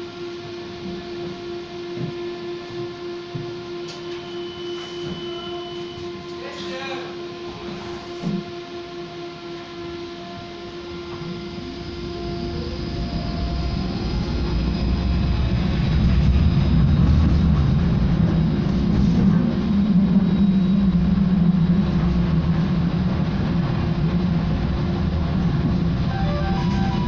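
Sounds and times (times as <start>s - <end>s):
electric hum: 0.0s - 27.0s
tram wheels rumbling on rails: 10.8s - 27.0s.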